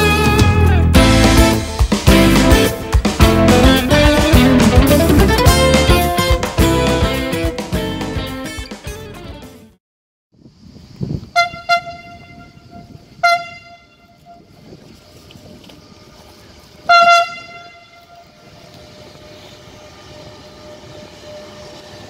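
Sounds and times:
freight train running: 0.0 - 8.6, 11.3 - 22.0
train horn blasts: 11.3 - 14.6, 16.8 - 18.7.

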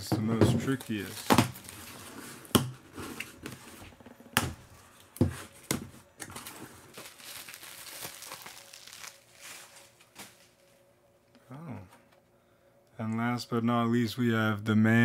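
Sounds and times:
plastic bag crinkling: 0.7 - 2.4, 6.4 - 10.8.

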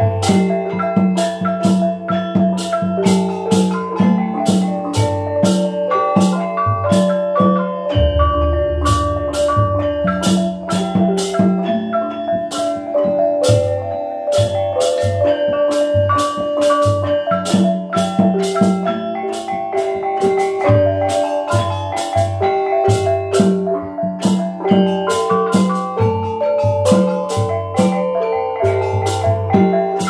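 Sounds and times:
hand drum strokes: 0.0 - 30.0
deep gong stroke humming: 8.0 - 9.8.

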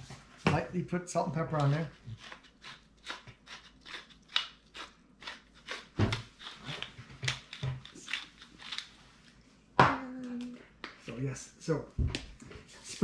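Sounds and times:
pepper mill grinding: 2.2 - 8.9.

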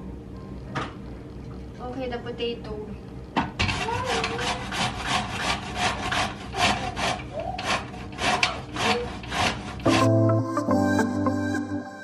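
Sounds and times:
vegetables grated on a grater: 3.6 - 10.1.

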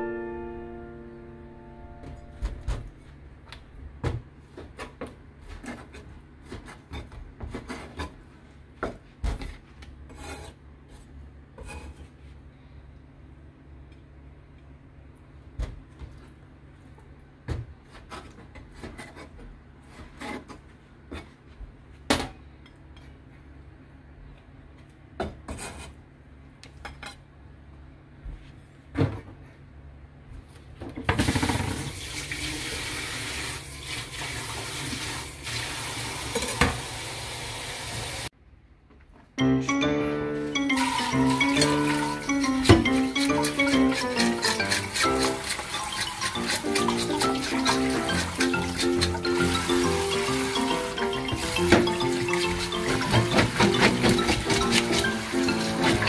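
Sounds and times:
water tap running into sink: 31.2 - 38.3, 40.7 - 42.2, 43.9 - 56.0
utensils and dishes clinking: 40.4 - 56.0.

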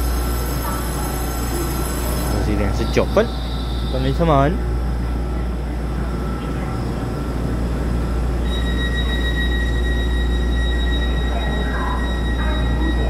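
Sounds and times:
electric train humming: 0.0 - 13.0
steady high tone: 0.0 - 13.0.

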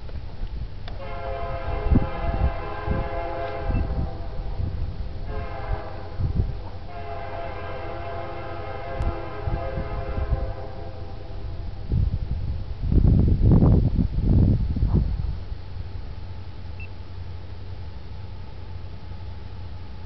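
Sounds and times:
locomotive air horn blasts: 1.0 - 4.6, 5.2 - 11.4
low rumbling thumps: 11.2 - 16.1.

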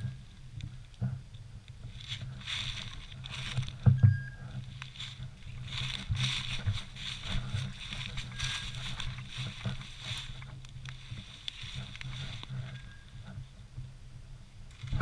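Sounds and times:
footsteps through tall grass: 1.9 - 13.1
brush swishing against legs: 4.8 - 12.6.

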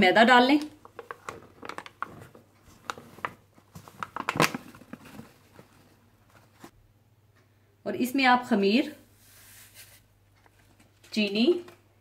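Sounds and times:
paper bag crinkling: 0.9 - 5.8.

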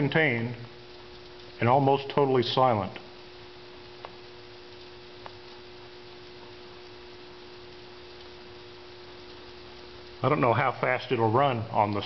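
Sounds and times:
constant hum: 0.0 - 12.0
faint steady hiss: 0.0 - 12.0
faint ticks: 0.6 - 1.6, 3.0 - 10.2.

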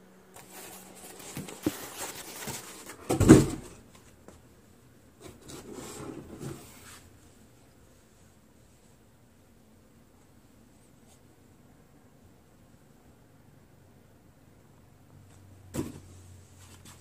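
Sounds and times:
rustling and handling noise: 0.2 - 9.4, 10.0 - 11.7, 15.2 - 17.0.

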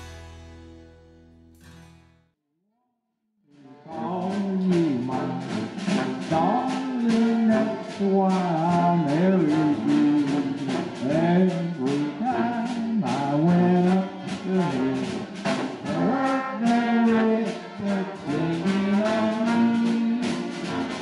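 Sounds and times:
brass band playing: 3.6 - 21.0.

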